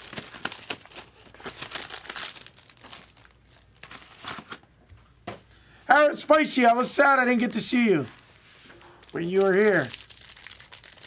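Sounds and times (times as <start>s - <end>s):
plastic wrapping crinkling: 0.0s - 4.6s, 8.0s - 11.0s.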